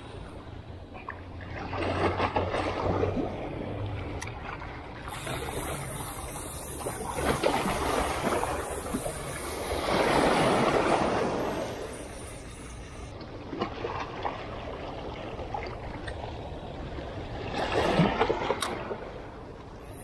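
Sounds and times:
small waves washing against rocks: 4.4s - 12.1s.

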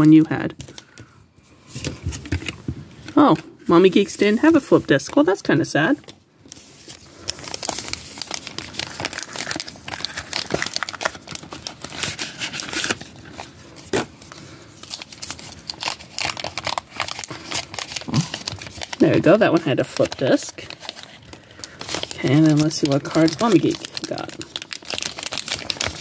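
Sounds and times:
paper pack tearing and crinkling: 6.5s - 26.0s.

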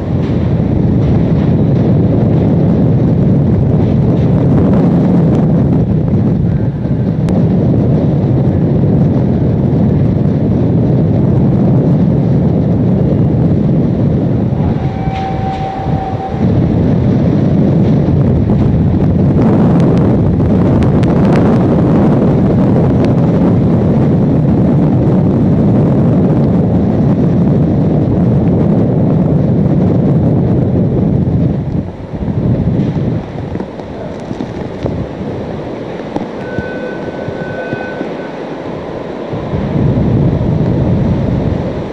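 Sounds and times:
strong wind roaring: 0.0s - 41.9s
steady high tone: 36.4s - 39.8s.

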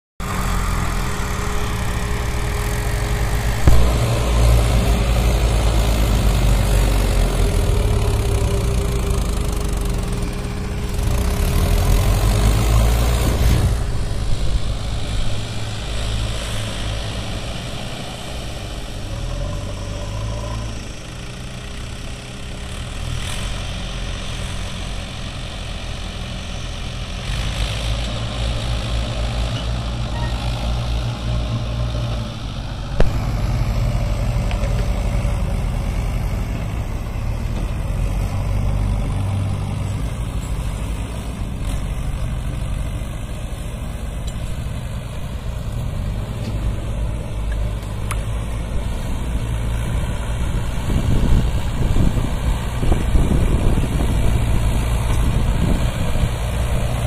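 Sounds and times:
backhoe diesel engine running: 0.2s - 57.0s
tractor diesel engine straining: 0.2s - 57.0s
sharp thump: 3.6s - 4.7s.

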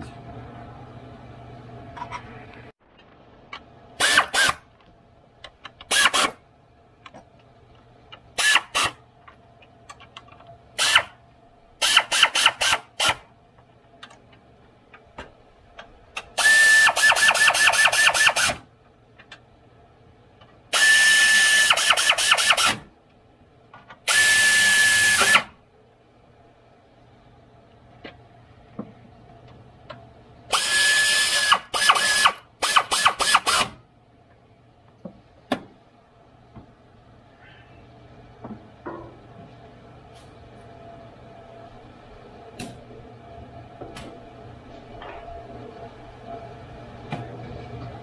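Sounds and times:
air ratchet whining and clicking: 4.0s - 4.6s, 5.6s - 6.4s, 8.4s - 9.0s, 10.8s - 11.1s, 11.8s - 13.2s, 16.2s - 18.6s, 20.7s - 22.8s, 24.0s - 25.5s, 30.5s - 33.8s.

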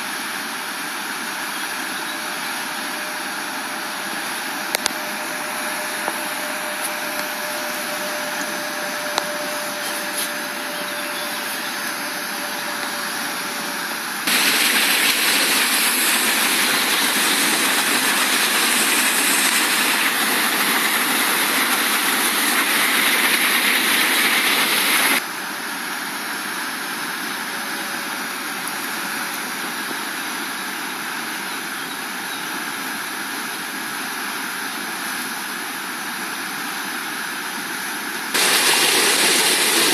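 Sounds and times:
whitewater roaring: 2.0s - 25.2s.

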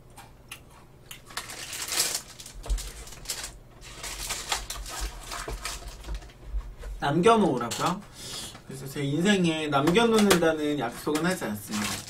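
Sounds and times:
plastic wrapper crinkling: 1.1s - 6.4s, 11.1s - 12.0s.

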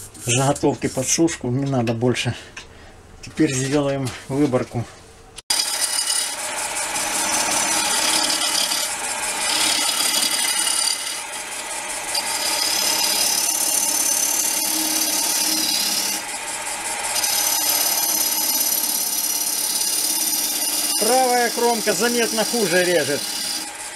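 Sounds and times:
cutter rasping on wood: 5.5s - 23.9s
lathe hum: 5.5s - 23.9s.

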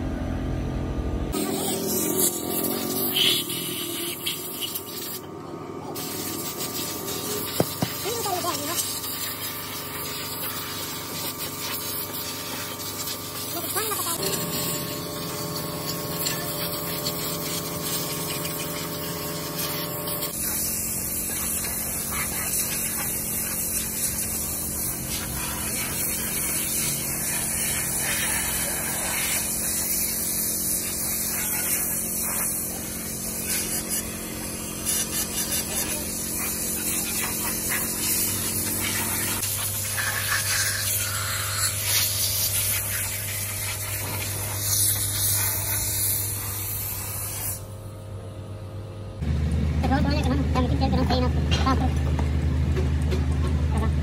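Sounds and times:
machine hum: 0.0s - 8.2s, 47.7s - 54.0s
spray gun hissing: 1.4s - 5.2s, 6.0s - 47.7s.

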